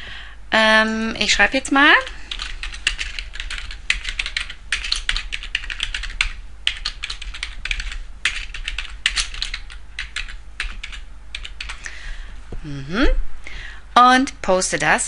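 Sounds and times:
typing on computer keyboard: 2.3s - 11.8s.

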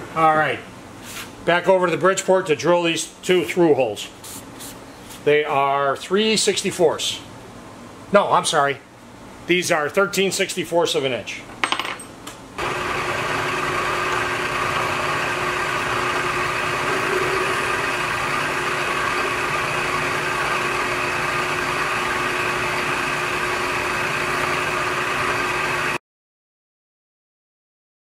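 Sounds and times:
drill bit cutting steel: 12.6s - 26.0s
milling machine hum and whine: 12.6s - 26.0s.

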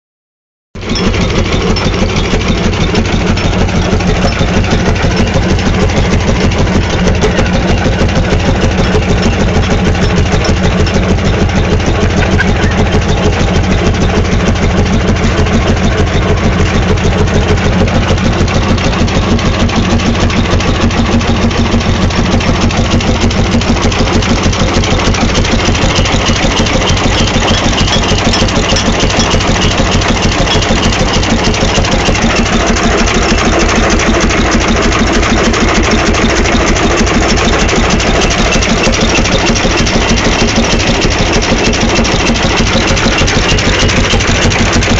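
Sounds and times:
tractor engine running: 0.8s - 44.9s.

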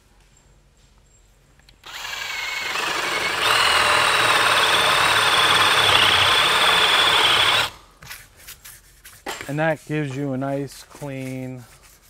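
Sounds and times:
drill bit chewing wood: 1.8s - 7.8s
power drill motor whine: 1.8s - 7.8s.

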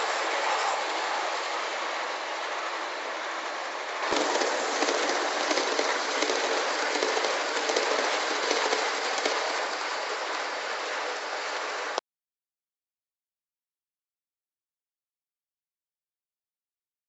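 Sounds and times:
model train wheels rolling on rails: 0.0s - 12.0s.

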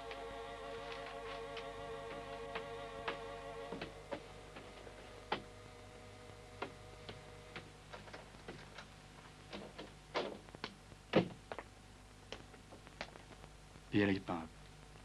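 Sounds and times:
held music chord: 0.0s - 7.0s
footsteps: 0.8s - 5.5s.

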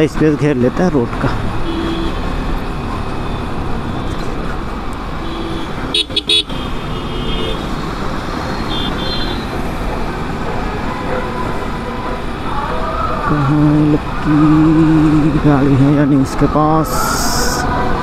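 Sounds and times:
road noise: 0.0s - 18.0s
vehicle horns honking: 1.6s - 2.4s, 5.2s - 7.8s, 8.6s - 9.6s.

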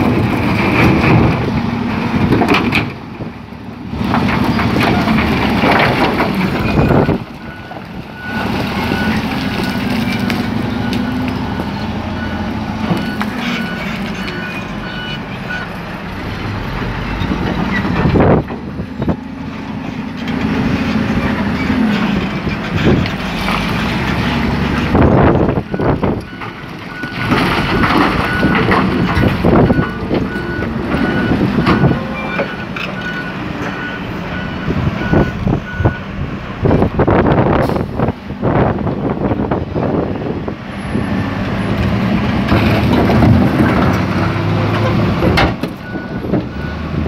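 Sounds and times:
loader diesel engine working: 0.0s - 47.0s
reversing alarm beeping: 29.2s - 36.1s.

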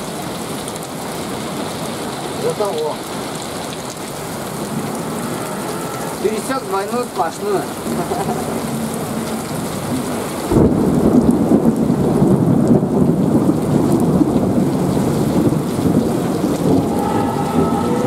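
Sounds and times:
heavy rain pouring: 0.0s - 18.0s
thunder rumbling: 8.7s - 18.0s.

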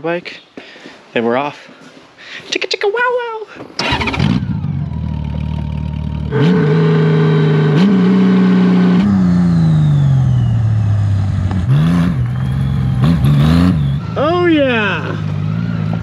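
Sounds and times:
motorcycle engine revving: 3.8s - 16.0s
motorcycle engine accelerating past: 3.9s - 16.0s.

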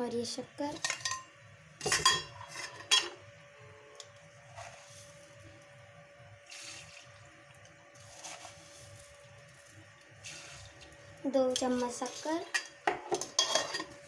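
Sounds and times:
faint steady hum: 0.0s - 14.0s
metal container clink: 1.8s - 3.2s
spoon scraping and sprinkling sugar: 4.4s - 5.4s, 7.9s - 14.0s.

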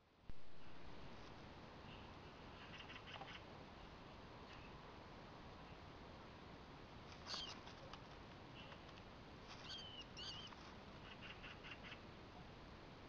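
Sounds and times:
baby rat squeaking: 7.2s - 7.7s, 9.6s - 12.0s
faint chirps: 9.6s - 12.0s.

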